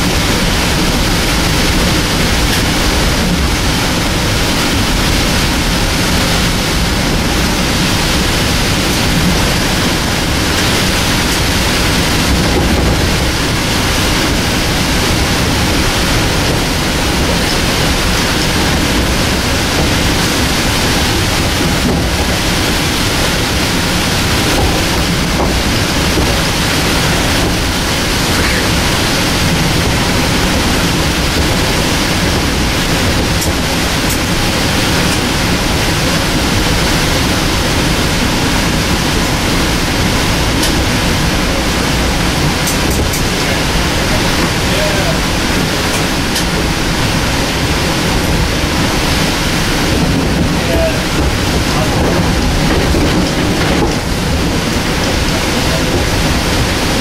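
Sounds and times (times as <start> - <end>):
train rushing at speed: 0.0 - 57.0.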